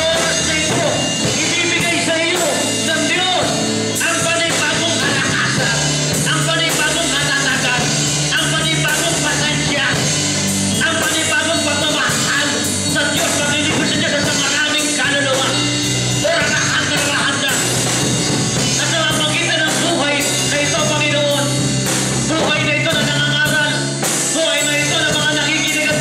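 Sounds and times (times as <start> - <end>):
instrumental accompaniment: 0.0 - 26.0
man singing into microphone: 22.3 - 23.8, 24.4 - 26.0.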